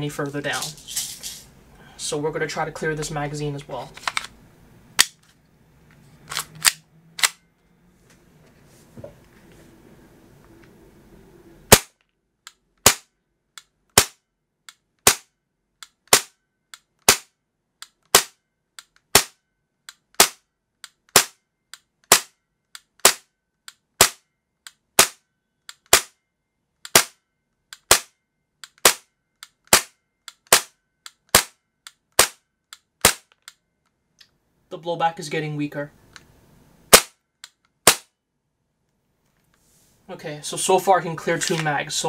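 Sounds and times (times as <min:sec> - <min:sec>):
airsoft pistol shots: 0:11.7 - 0:12.0, 0:12.8 - 0:13.1, 0:13.9 - 0:14.2, 0:15.0 - 0:15.3, 0:16.1 - 0:16.4, 0:17.0 - 0:17.3, 0:18.1 - 0:18.4, 0:19.1 - 0:19.4, 0:20.2 - 0:20.4, 0:21.1 - 0:21.4, 0:22.1 - 0:22.3, 0:23.0 - 0:23.3, 0:24.0 - 0:24.2, 0:25.0 - 0:25.2, 0:25.9 - 0:26.1, 0:26.9 - 0:27.2, 0:27.8 - 0:28.1, 0:28.8 - 0:29.1, 0:29.7 - 0:30.7, 0:31.3 - 0:31.6, 0:32.2 - 0:32.4, 0:33.0 - 0:33.3, 0:36.9 - 0:37.2, 0:37.8 - 0:38.1.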